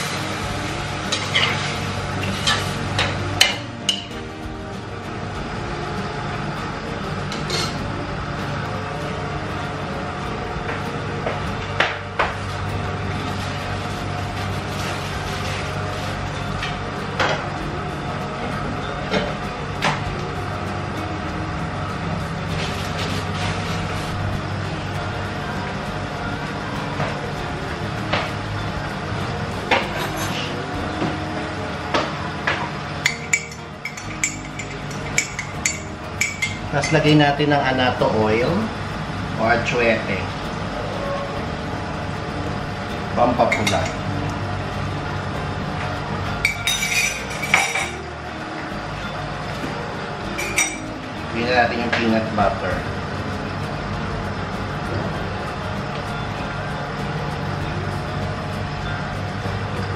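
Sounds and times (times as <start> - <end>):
kitchen fan motor hum: 0.0 - 59.9
kitchenware clinking: 32.0 - 37.2, 43.4 - 44.0, 46.4 - 48.0, 50.4 - 50.9.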